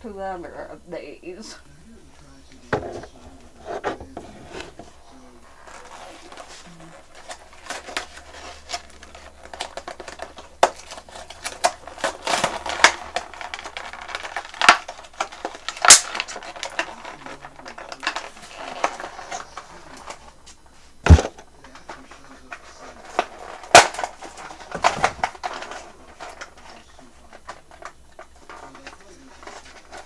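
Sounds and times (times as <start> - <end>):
plastic packaging crackling and snapping: 2.2 - 30.0.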